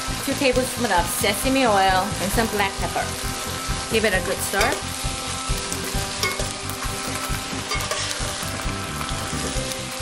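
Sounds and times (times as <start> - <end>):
vegetables sizzling in a wok: 0.0 - 10.0
spatula scraping a pan: 5.5 - 10.0.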